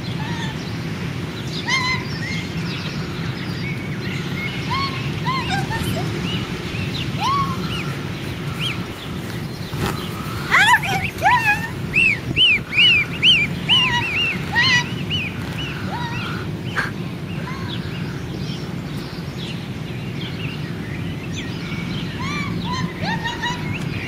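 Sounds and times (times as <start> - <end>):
goslings peeping: 1.5 - 18.3.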